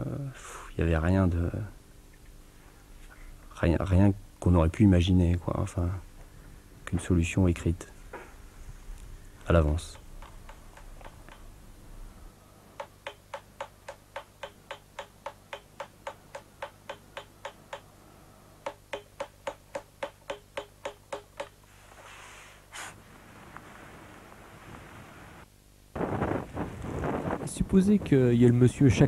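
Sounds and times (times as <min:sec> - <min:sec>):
hammer tapping on chisel: 0:09.9 - 0:11.5, 0:12.8 - 0:17.9, 0:18.6 - 0:21.6.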